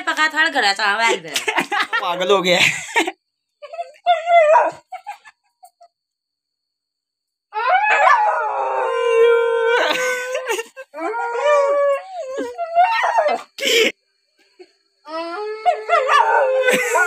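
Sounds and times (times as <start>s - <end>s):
dog howling: 3.8s - 4.9s, 7.5s - 13.5s, 15.1s - 17.0s.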